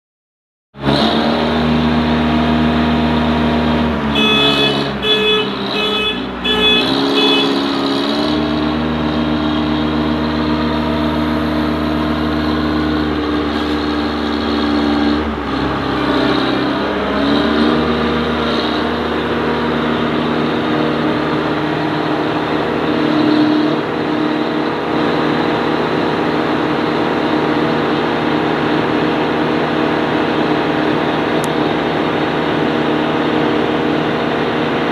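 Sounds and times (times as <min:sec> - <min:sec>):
concrete mixer diesel engine running: 0:00.8 - 0:34.9
short high beeps: 0:04.2 - 0:07.6.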